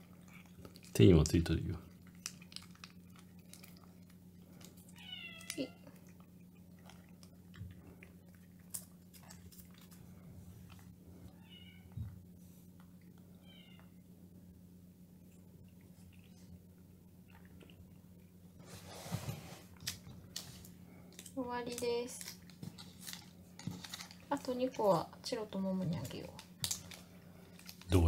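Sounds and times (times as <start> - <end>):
cat meowing: 4.9 - 6.0, 11.3 - 12.0, 13.4 - 13.9.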